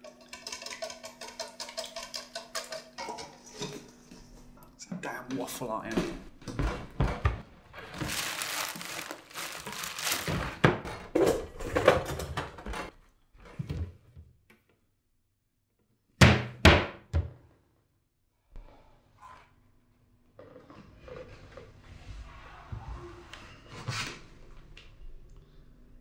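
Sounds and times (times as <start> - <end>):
pots and pans clattering: 9.7 - 12.9.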